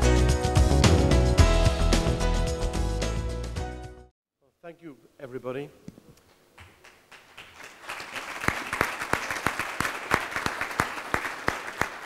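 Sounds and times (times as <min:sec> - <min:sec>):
audience applauding: 0:06.6 - 0:12.0
nearby person clapping: 0:06.6 - 0:12.0.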